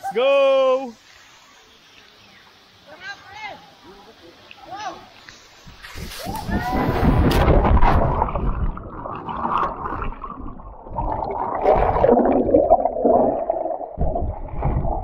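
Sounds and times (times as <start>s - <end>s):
underwater gurgling and churning: 6.8s - 15.0s.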